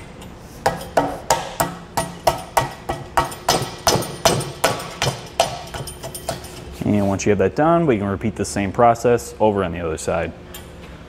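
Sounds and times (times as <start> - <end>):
sharp knocks on metal tube: 0.6 - 6.4.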